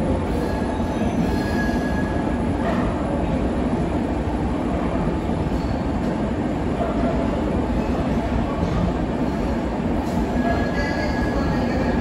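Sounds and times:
faint wheel squeal: 0.4s - 2.2s.

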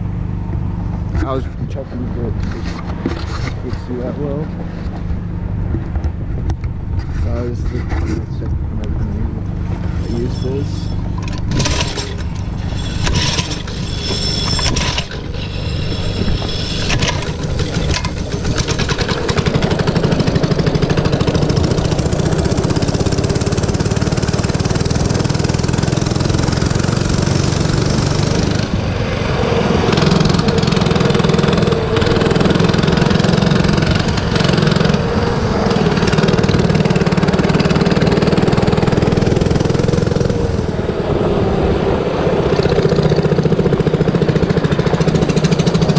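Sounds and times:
mini bike engine revving: 9.7s - 45.9s.

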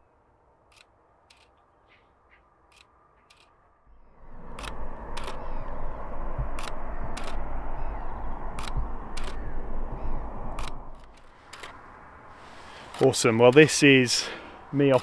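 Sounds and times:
rushing noise with low rumble: 3.3s - 13.0s
camera shutter clicks: 4.5s - 5.6s, 6.6s - 7.4s, 8.6s - 9.4s, 10.6s - 11.8s.

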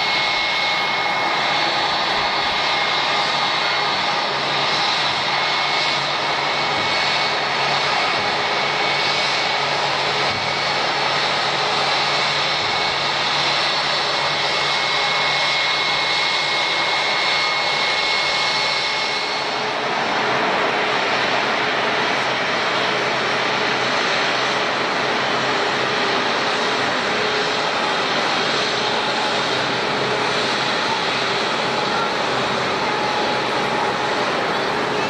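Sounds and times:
jet engines idling whine: 0.0s - 35.0s.

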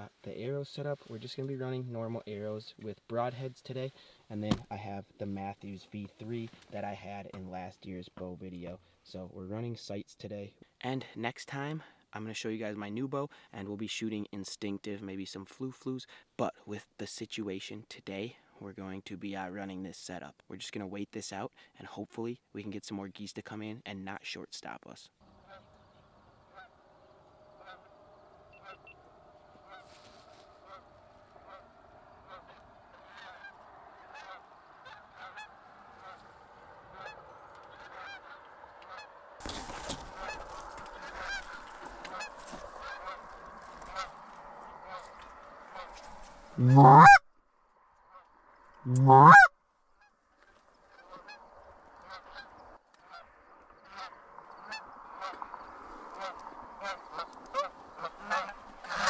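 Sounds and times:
geese honking: 25.2s - 39.2s, 39.9s - 47.2s, 48.9s - 59.0s.

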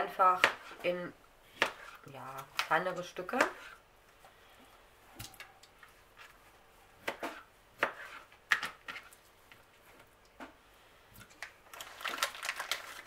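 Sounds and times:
plastic packet crinkling: 11.3s - 13.0s.

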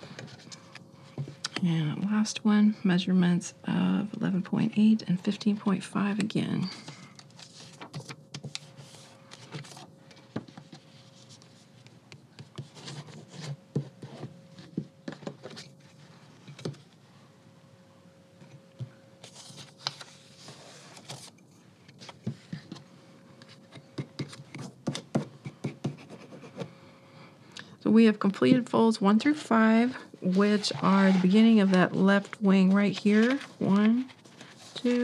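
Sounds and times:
paper being folded and creased: 7.2s - 9.9s, 19.2s - 22.8s, 30.3s - 35.0s.

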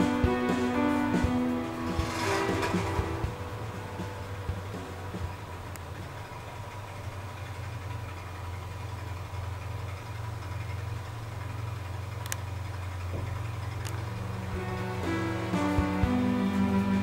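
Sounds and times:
faint clicks: 11.4s - 14.1s.

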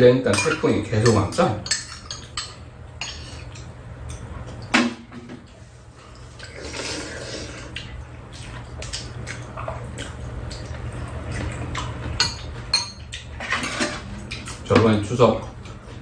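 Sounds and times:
utensils clinking against bowls: 0.0s - 4.6s, 11.3s - 15.8s.

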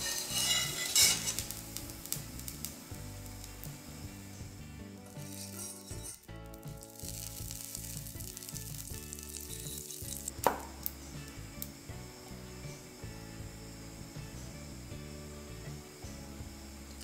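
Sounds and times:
butter sizzling in a frying pan: 0.0s - 17.0s
sharp knock: 10.4s - 10.8s.

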